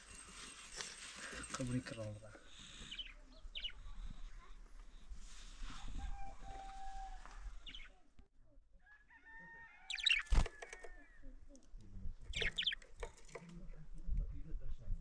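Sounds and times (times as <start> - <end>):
rooster crowing: 6.0 - 7.6, 8.8 - 11.0
budgerigar chirping: 9.9 - 10.3, 12.3 - 12.8.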